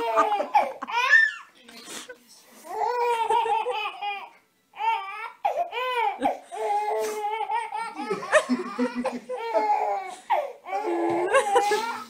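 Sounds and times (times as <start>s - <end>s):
baby laughing: 0.0s - 1.5s, 2.9s - 4.3s, 5.5s - 12.0s.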